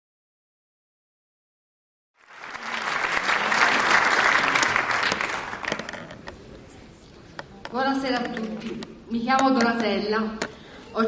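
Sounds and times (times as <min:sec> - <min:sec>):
audience applauding: 0:02.2 - 0:06.1.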